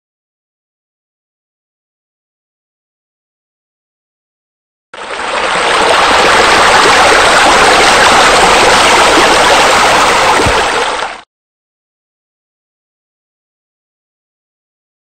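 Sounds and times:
water rushing and spilling: 0:05.0 - 0:11.2.

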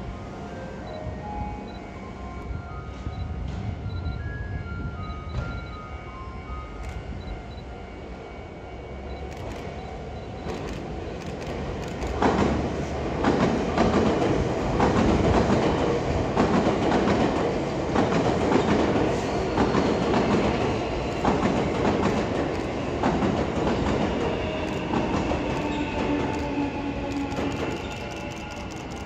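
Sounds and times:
steady high ringing tone: 0:00.0 - 0:10.8
train wheels clacking over rail joints: 0:11.9 - 0:29.0.

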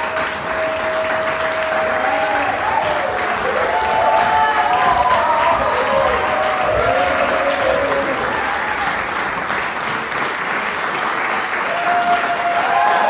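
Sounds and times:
audience applauding: 0:00.0 - 0:13.0
voices: 0:01.2 - 0:08.9.

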